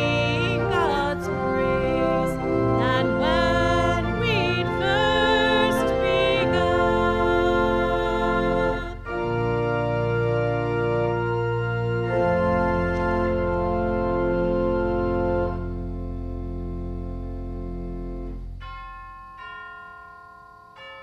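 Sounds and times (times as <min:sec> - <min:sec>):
church organ chords: 0:00.0 - 0:21.0.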